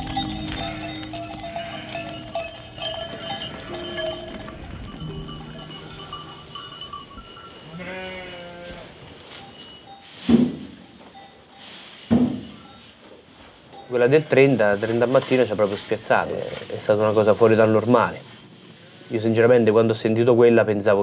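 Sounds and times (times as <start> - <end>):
sheep bells clinking: 0.0 - 18.2
sheep bleating: 0.1 - 2.4, 7.6 - 9.0.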